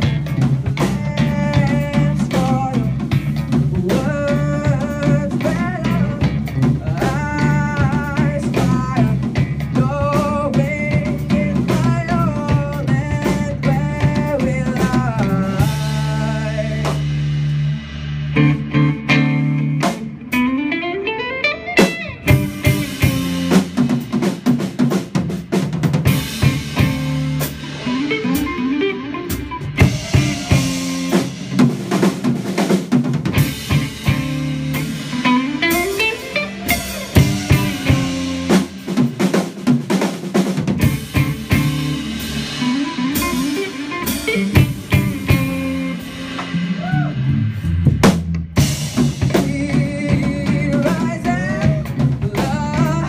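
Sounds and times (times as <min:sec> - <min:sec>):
drum kit snare and kick: 0:00.0 - 0:20.6, 0:21.8 - 0:53.0
bass guitar: 0:00.0 - 0:53.0
electric guitar: 0:00.0 - 0:53.0
rising pitch slide: 0:35.0 - 0:38.8.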